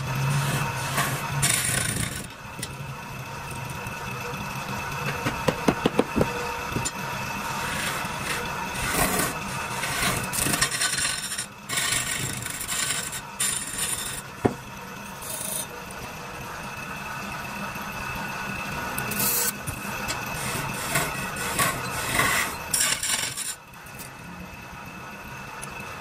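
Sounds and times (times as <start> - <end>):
chisel scraping spinning wood: 0.0 - 2.8, 5.1 - 14.6, 19.1 - 23.6
wood lathe motor hum: 0.0 - 26.0.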